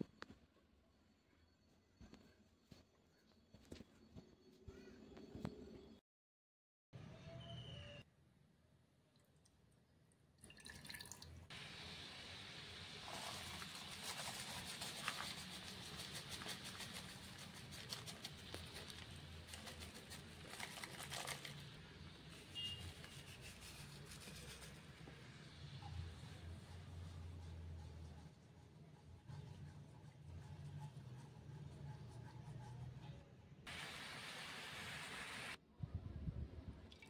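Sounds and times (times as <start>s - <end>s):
water pouring into a pan: 10.4s - 11.4s.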